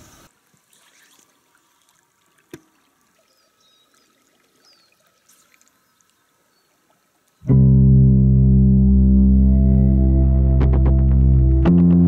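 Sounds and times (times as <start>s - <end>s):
faint river water trickling: 0.0s - 7.5s.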